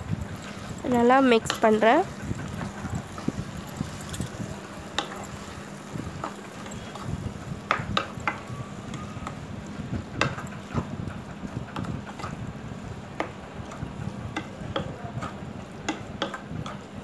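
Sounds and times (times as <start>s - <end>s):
spatula stirring in a pan: 0.2s - 17.0s
spatula tapping against pan: 7.7s - 8.4s, 14.3s - 15.0s, 15.8s - 16.8s.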